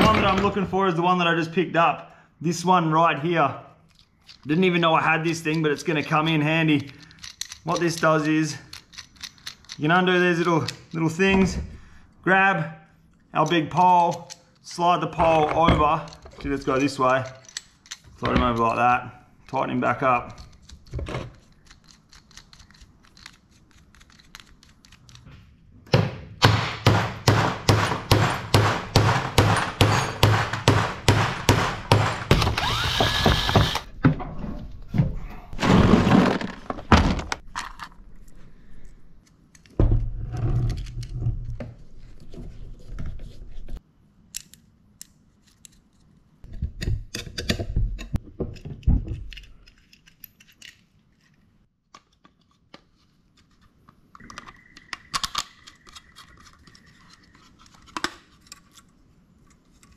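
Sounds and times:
handling noises: 13.1 - 26.4
sharp knocks: 25.9 - 34.4.

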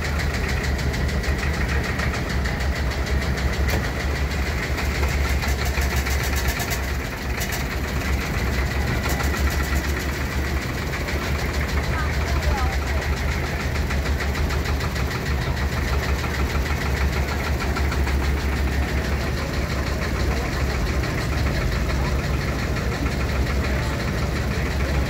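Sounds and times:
tractor engines running slowly: 0.0 - 25.0.

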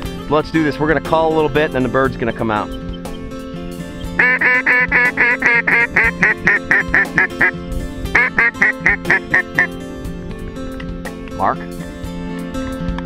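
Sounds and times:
duck call quacks: 4.2 - 7.5, 8.2 - 9.7.

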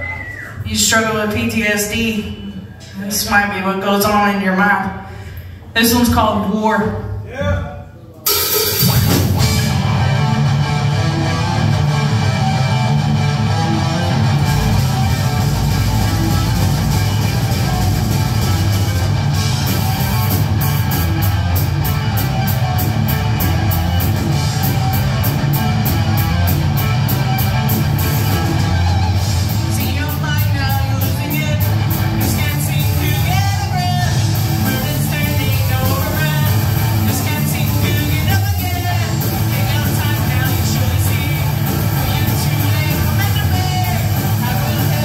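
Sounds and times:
rock band playing: 8.3 - 45.0
sung vocals: 28.8 - 45.0.

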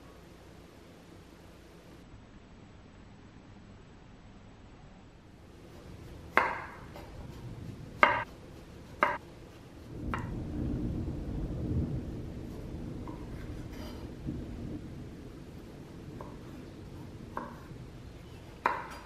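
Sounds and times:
knife chopping on wooden board: 5.6 - 7.4, 8.0 - 10.3, 17.3 - 17.7, 18.6 - 19.0.

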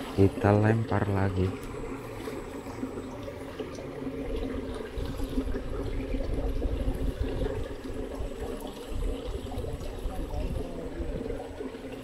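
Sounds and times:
water flowing and trickling: 0.0 - 12.0.

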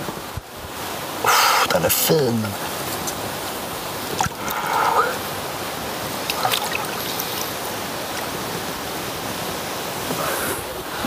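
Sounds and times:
water sloshing and trickling: 2.3 - 5.0, 5.6 - 9.5
water splash: 4.0 - 4.7, 6.1 - 8.5.

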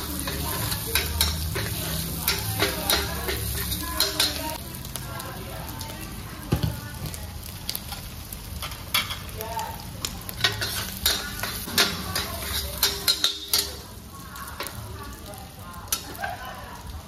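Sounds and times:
metal spatula scraping a wok: 0.0 - 4.6, 10.3 - 13.9
hot oil sizzling: 0.0 - 17.0.

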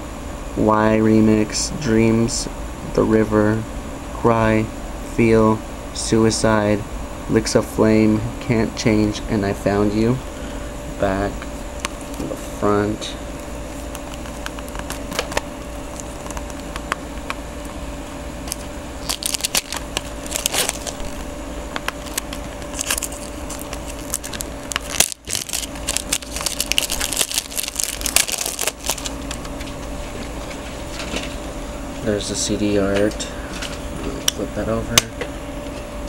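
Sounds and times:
steady hum: 0.0 - 36.0
crinkling rustles: 13.4 - 17.0, 18.4 - 31.4.

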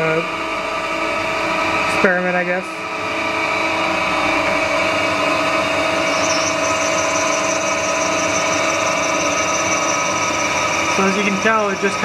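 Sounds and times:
metal lathe whine: 0.0 - 12.0
high thin whine: 5.6 - 12.0.

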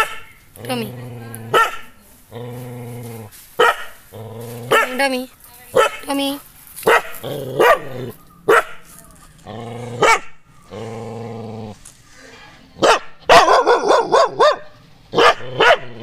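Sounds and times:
dog barking: 0.0 - 0.3, 1.5 - 2.0, 3.6 - 4.0, 4.7 - 5.0, 5.8 - 6.0, 6.8 - 8.9, 10.0 - 10.4, 12.8 - 16.0
dog growling: 0.0 - 3.3, 4.0 - 5.1, 7.1 - 8.3, 9.4 - 11.8, 15.1 - 16.0.

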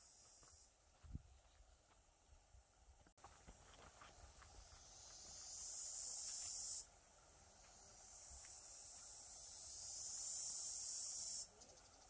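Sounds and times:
insect buzzing drone: 4.6 - 6.9, 7.5 - 12.0.

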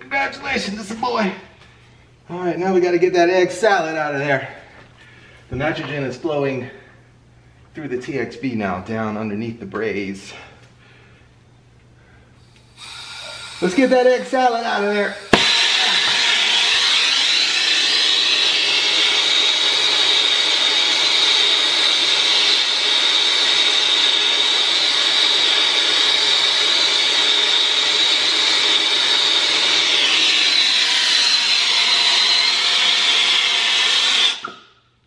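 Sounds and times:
torch flame hissing roar: 12.6 - 34.4.

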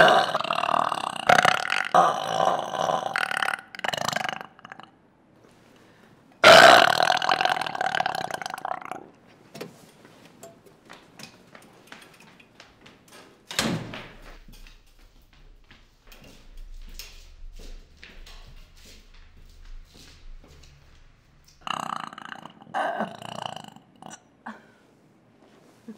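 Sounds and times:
woman burping: 0.0 - 5.0, 6.4 - 9.1, 21.6 - 24.8.

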